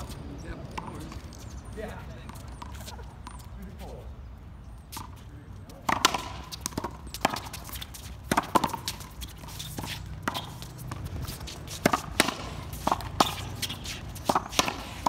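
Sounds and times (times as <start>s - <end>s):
racquetball hitting racquets and wall: 5.9s - 9.2s, 9.8s - 15.0s.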